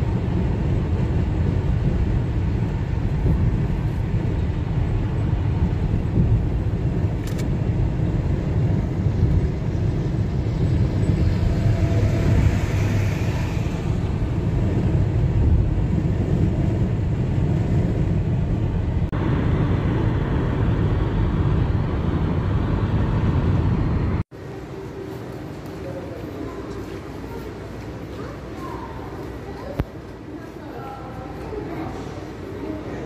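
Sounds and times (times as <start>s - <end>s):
road and engine rumble in car: 0.0s - 24.3s.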